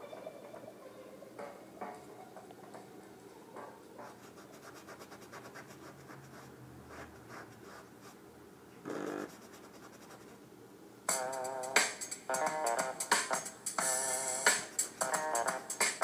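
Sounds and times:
paintbrush scratching on canvas: 0:04.0 - 0:08.2, 0:09.2 - 0:10.4.

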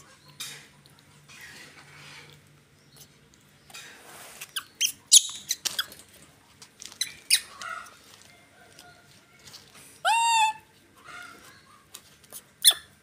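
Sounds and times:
baby monkey squeaking: 0:04.4 - 0:05.9, 0:10.1 - 0:10.6, 0:12.6 - 0:13.0.

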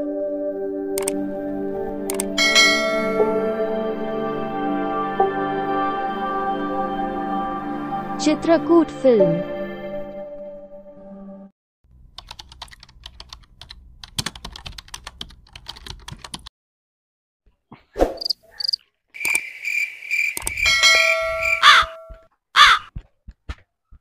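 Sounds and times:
harsh bird call: 0:18.2 - 0:22.0
quick light clicking: 0:20.3 - 0:20.6.

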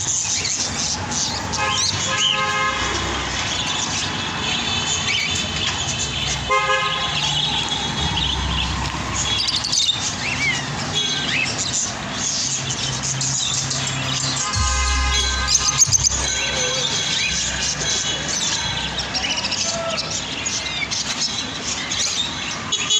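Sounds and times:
traffic rumbling: 0:00.0 - 0:22.9
car horn toot: 0:01.6 - 0:03.1, 0:06.5 - 0:07.1, 0:14.4 - 0:18.0
bird chirps: 0:12.3 - 0:19.6.

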